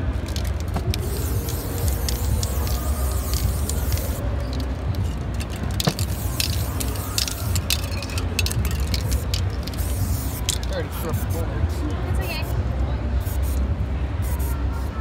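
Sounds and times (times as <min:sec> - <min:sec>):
spray-paint cans hissing: 0:00.0 - 0:11.4, 0:13.2 - 0:13.6, 0:14.2 - 0:14.9.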